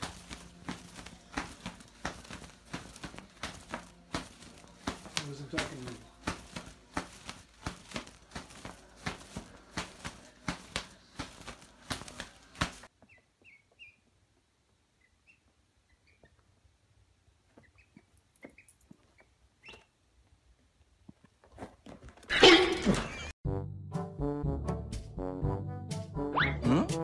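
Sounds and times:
duckling peeping: 0:13.0 - 0:14.2, 0:14.9 - 0:16.5, 0:17.6 - 0:19.9.

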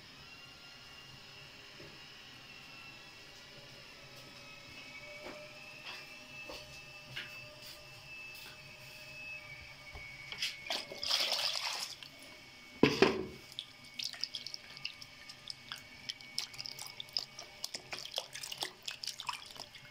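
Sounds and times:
small splashes and drips: 0:10.7 - 0:12.1, 0:13.4 - 0:19.9
water sloshing: 0:10.7 - 0:12.1, 0:13.4 - 0:19.9.

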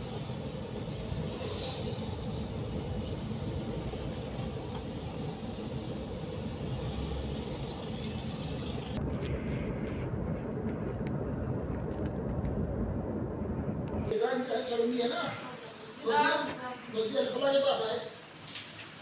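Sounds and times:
vehicle engine and road noise: 0:00.0 - 0:14.1.

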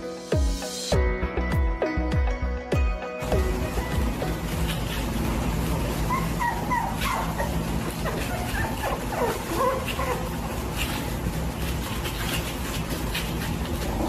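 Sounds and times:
puppies whimpering and yipping: 0:04.4 - 0:14.0.

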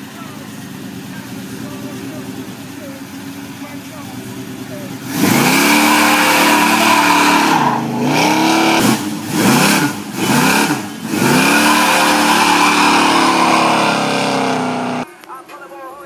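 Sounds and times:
tyres screeching: 0:00.0 - 0:15.1
engine revving high: 0:04.4 - 0:15.1.

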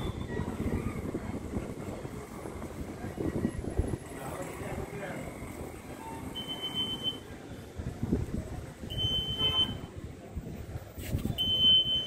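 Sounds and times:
metal detector beeping: 0:11.4 - 0:12.0.

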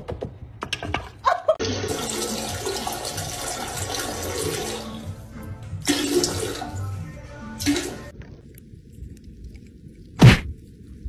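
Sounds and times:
toilet flushing: 0:01.6 - 0:07.0, 0:07.6 - 0:08.1.

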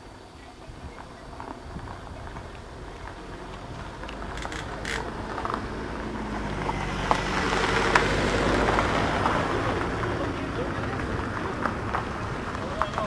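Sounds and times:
sharp clicks: 0:04.0 - 0:05.5.

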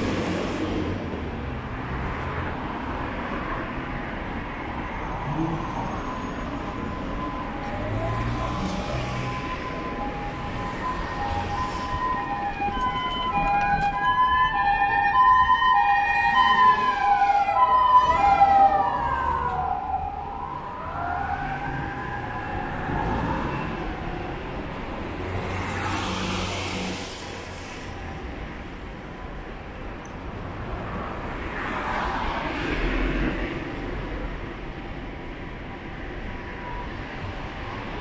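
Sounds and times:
wailing siren: 0:04.9 - 0:24.6
two-tone hi-lo siren: 0:05.8 - 0:24.4.

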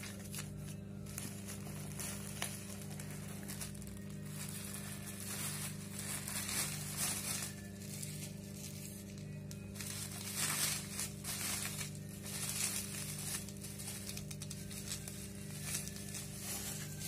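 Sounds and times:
bubble wrap crinkling: 0:00.0 - 0:17.0.

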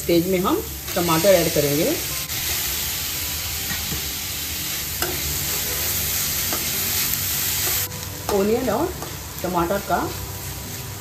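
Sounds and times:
onion sizzling in frying pan: 0:00.0 - 0:11.0
steel spoon clicking on pan: 0:05.0 - 0:05.3.

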